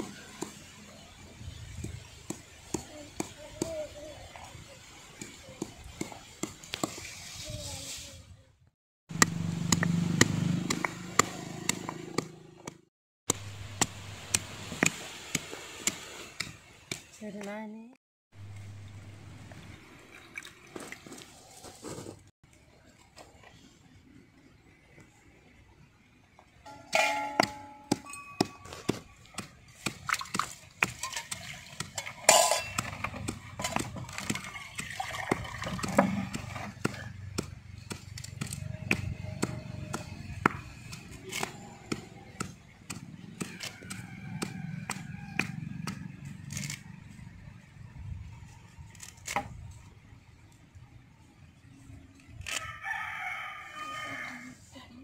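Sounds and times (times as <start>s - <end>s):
stone pestle pounding in mortar: 9.1s - 12.8s, 27.0s - 46.0s
metal pot clinking and clanging: 26.7s - 28.7s, 30.9s - 33.8s
water splashing in a pot: 29.7s - 36.9s.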